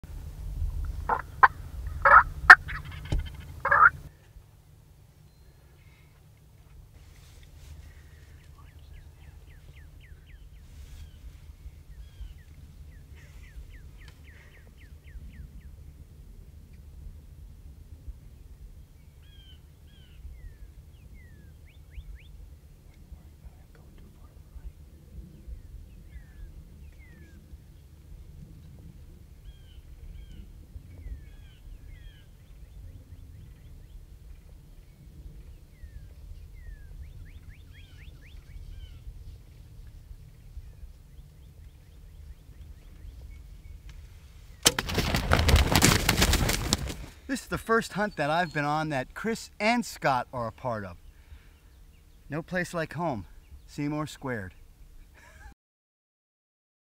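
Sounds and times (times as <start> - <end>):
steady low rumble: 0.0 - 5.2, 5.9 - 44.6
bow shot thump: 3.1 - 3.3
faint bird chirping: 5.1 - 6.4, 7.8 - 16.0, 24.2 - 28.0, 29.4 - 44.6
songbird whistling: 35.8 - 39.0
rapid thumps and rustling: 44.6 - 47.3.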